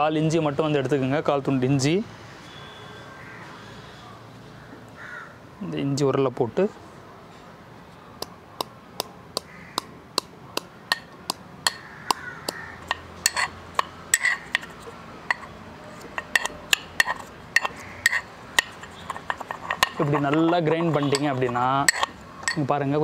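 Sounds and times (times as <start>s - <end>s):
metal pestle pounding in mortar: 8.6s - 22.7s.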